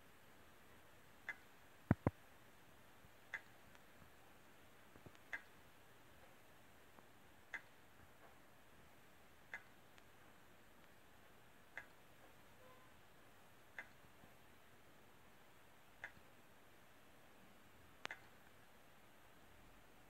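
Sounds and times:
hard drive clicking faintly: 1.2 - 15.0.

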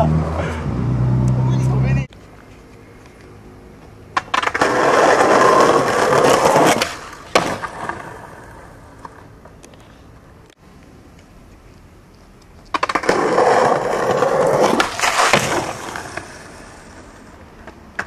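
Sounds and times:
skateboard wheels rolling on concrete: 0.0 - 18.0
skateboard landing clack: 4.1 - 9.2, 12.7 - 16.5.

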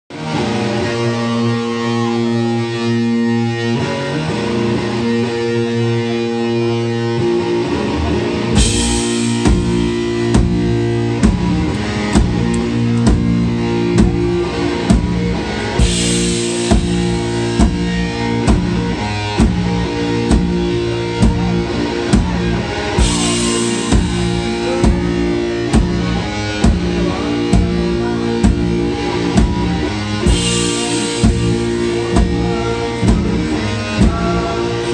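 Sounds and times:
electric guitar riff: 0.1 - 34.9
cymbal crash: 8.6 - 11.6, 15.8 - 18.9
drum kit beat: 8.6 - 34.5.

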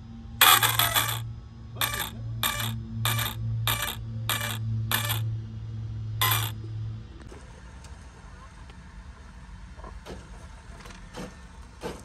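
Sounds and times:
servo whirring: 0.4 - 1.2, 1.8 - 5.2, 6.2 - 6.5.

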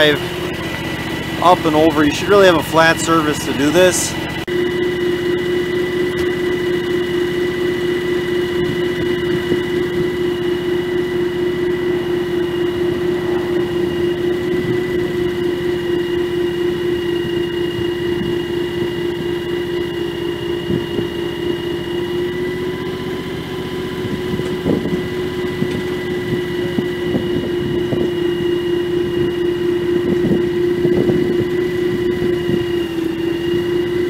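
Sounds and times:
tractor engine idling: 0.0 - 34.0.

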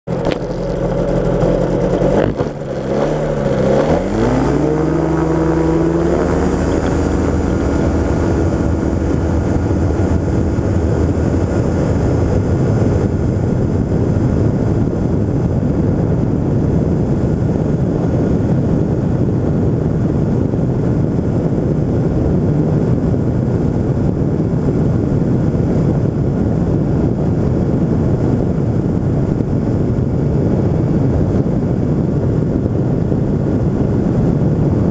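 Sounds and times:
rush of wind: 0.0 - 34.9
two-stroke aircraft engine at full power: 0.0 - 34.9.

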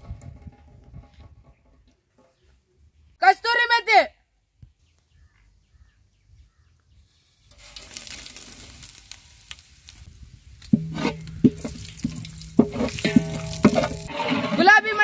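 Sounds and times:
meat sizzling in a pan: 7.5 - 14.1
metal ladle knocking pan: 10.7 - 15.0.

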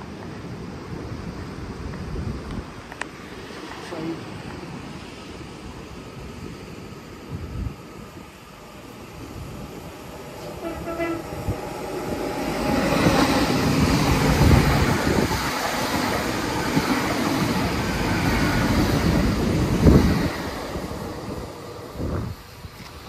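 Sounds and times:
train passing rush: 0.0 - 23.0
train horn: 10.4 - 11.6.

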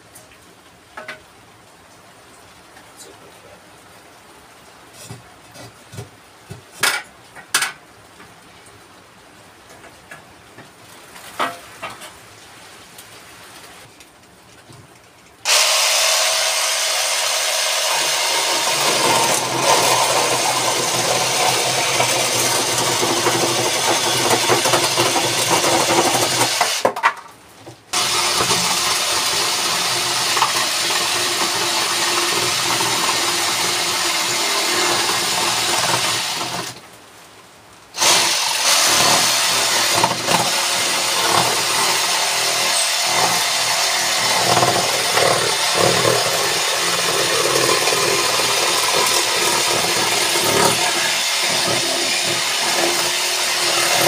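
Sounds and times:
reciprocating saw cutting wood: 15.5 - 26.8, 27.9 - 36.8, 38.0 - 54.0.

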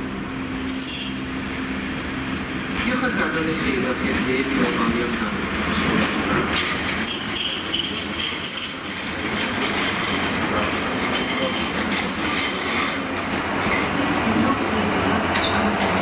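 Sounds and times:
train wheels rumbling on rail: 0.0 - 16.0
wheel squeal: 0.5 - 2.3, 4.9 - 5.8, 6.6 - 13.9.

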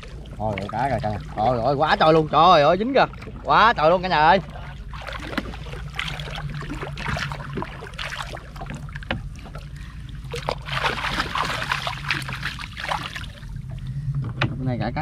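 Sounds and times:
water splashing and dripping: 0.0 - 14.0
steady low hum: 0.0 - 15.0.

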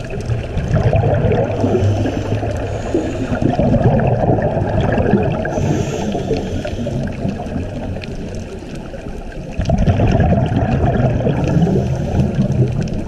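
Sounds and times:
underwater regulator bubbling: 0.0 - 13.0
faint clicks: 5.6 - 9.8, 11.4 - 13.0.

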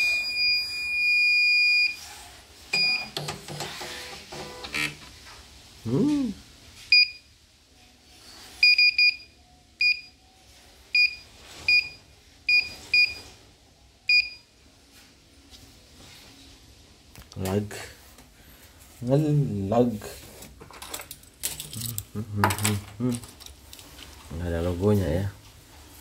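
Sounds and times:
clicks and mechanical noise: 2.7 - 5.2
keypad beeps: 8.6 - 10.1, 14.1 - 14.4.

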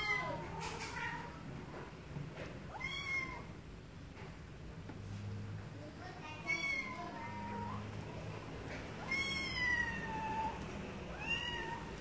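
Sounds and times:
cat meowing: 0.0 - 1.4, 2.7 - 3.5, 6.4 - 7.8, 9.0 - 12.0.

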